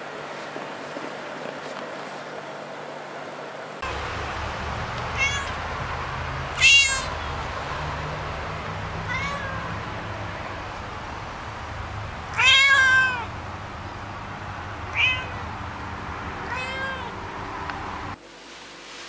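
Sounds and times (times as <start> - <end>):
cat meowing: 5.1 - 5.8, 6.5 - 10.7, 12.0 - 13.4, 14.9 - 15.6, 16.4 - 17.3.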